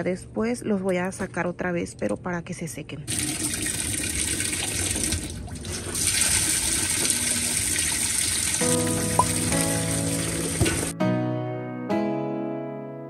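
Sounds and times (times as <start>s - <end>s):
water pouring into tub: 3.1s - 10.9s
background music: 8.6s - 13.0s.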